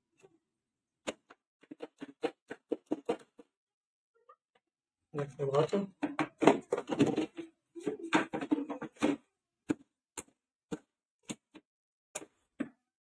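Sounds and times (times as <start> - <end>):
plastic clatter and knocks: 1.1 - 3.5, 5.6 - 9.9.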